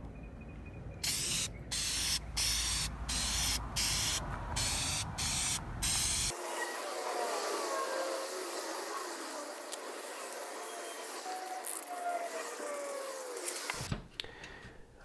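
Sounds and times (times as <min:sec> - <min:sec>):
spray-paint can hissing: 0:01.0 - 0:06.4, 0:07.4 - 0:13.8.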